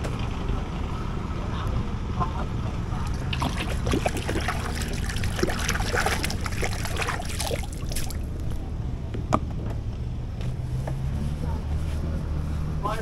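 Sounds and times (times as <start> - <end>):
water splashing and trickling: 3.0 - 8.6.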